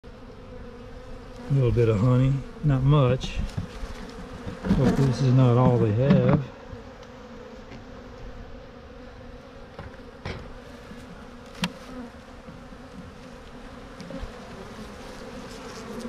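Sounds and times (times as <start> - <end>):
honeybees buzzing: 0.0 - 16.0.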